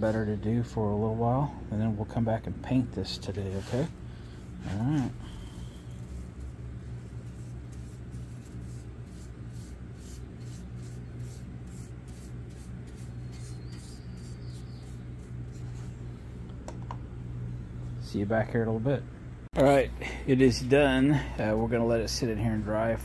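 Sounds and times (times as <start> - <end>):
steady low hum: 0.0 - 23.0
paintbrush brushing on metal: 3.2 - 16.0.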